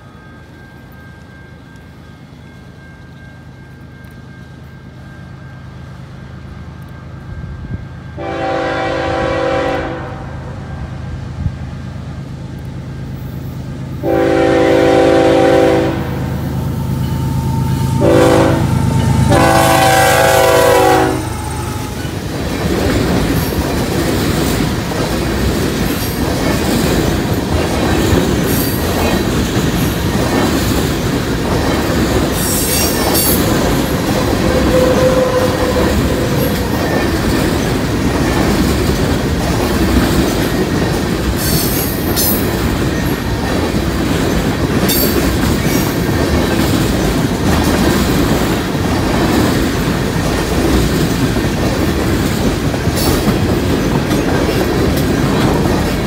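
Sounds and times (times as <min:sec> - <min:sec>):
train wheels rumbling on rails: 0:00.0 - 0:56.0
locomotive air horn: 0:08.2 - 0:10.9, 0:14.0 - 0:16.4, 0:17.3 - 0:22.0, 0:34.2 - 0:36.6
high wheel squeals: 0:16.5 - 0:22.2, 0:32.3 - 0:37.7.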